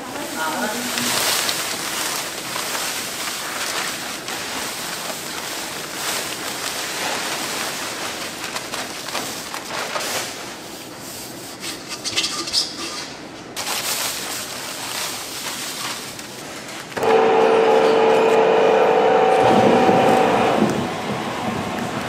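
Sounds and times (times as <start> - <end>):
powder pouring from sacks: 0.1 - 11.6, 13.6 - 16.9.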